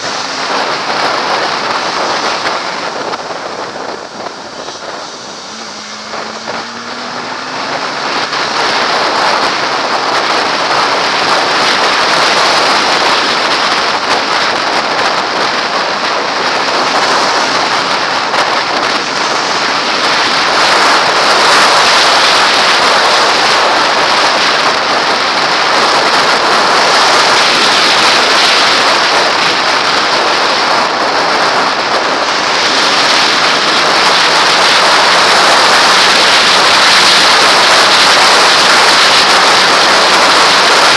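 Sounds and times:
faint motorcycle engine: 0.0 - 10.1
wind rushing over camera: 0.0 - 40.9.

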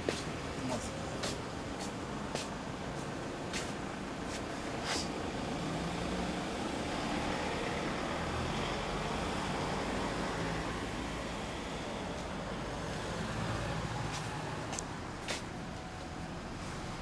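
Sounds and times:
car passing: 4.6 - 15.6.

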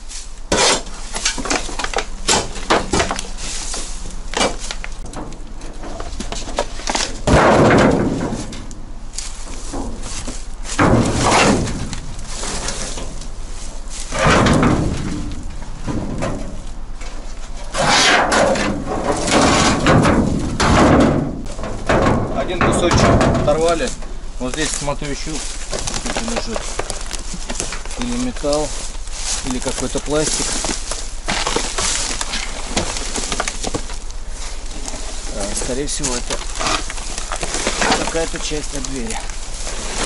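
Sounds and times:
shovel scraping through metal scrap: 0.1 - 1.7, 17.6 - 20.8
steel sheet dragged and banging: 7.1 - 8.7, 9.5 - 13.2, 13.9 - 16.6, 17.7 - 24.0.

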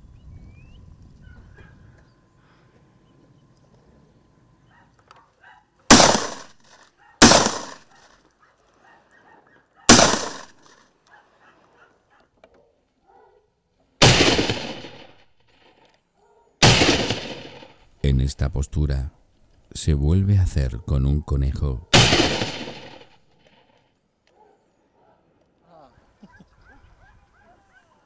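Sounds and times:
shotgun shots echoing: 5.9 - 8.1, 9.9 - 10.8, 14.0 - 15.3, 16.6 - 17.8, 21.9 - 23.2.

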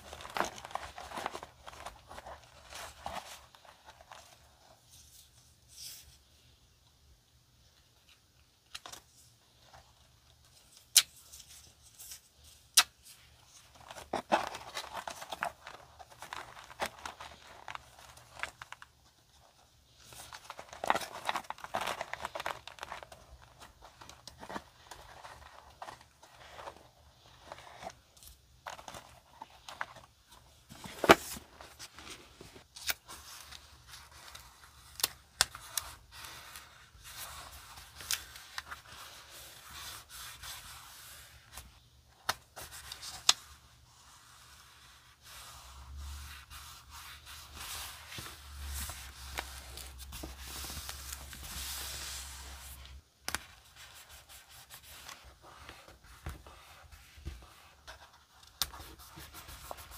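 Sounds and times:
paper crinkling and tapping: 0.0 - 4.3, 13.7 - 19.0, 20.0 - 26.8.

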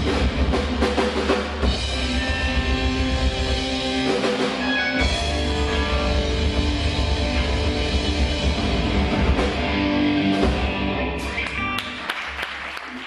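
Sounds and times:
live rock band playing: 0.0 - 12.4
audience handclaps: 11.3 - 13.0.

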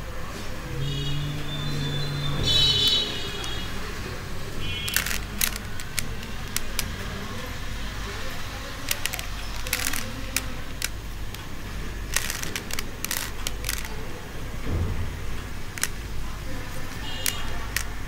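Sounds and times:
puzzle cube plastic clicks: 2.5 - 3.8, 4.6 - 7.5, 8.2 - 14.2, 15.7 - 18.0.

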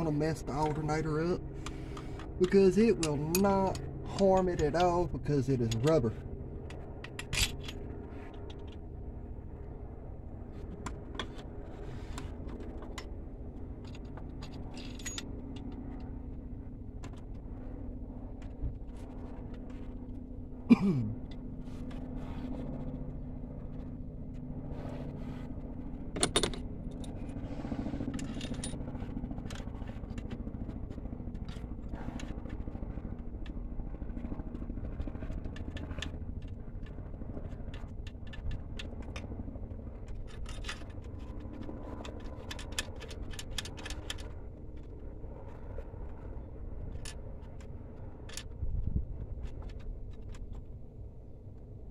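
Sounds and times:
steady low hum: 0.0 - 51.9
tools and metal parts clinking: 2.4 - 6.1, 7.0 - 7.8, 13.8 - 15.6, 26.2 - 27.1, 28.1 - 28.8, 40.1 - 44.3.

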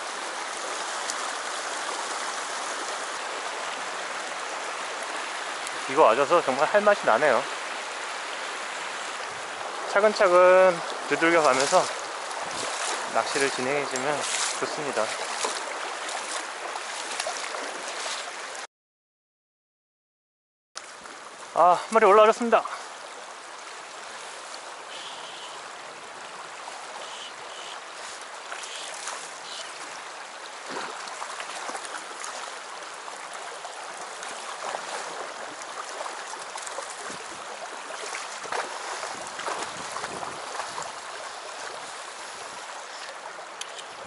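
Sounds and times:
rocky river rushing: 0.0 - 18.6, 21.2 - 44.0
sharp water splashes: 0.0 - 18.7, 20.8 - 44.0.

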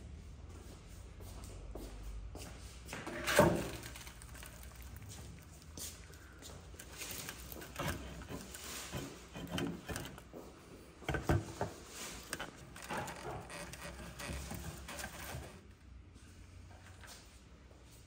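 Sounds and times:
knocks and scrapes handling meat: 3.0 - 15.7.

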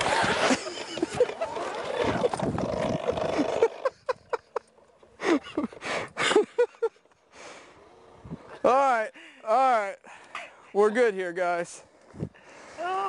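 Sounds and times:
wind noise: 0.0 - 4.4, 8.1 - 8.6, 12.1 - 12.4.

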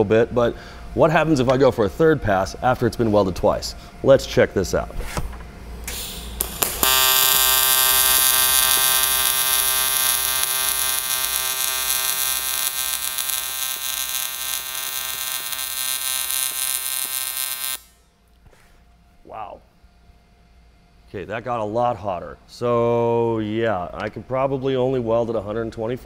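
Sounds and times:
welding arc buzzing: 5.7 - 18.4.

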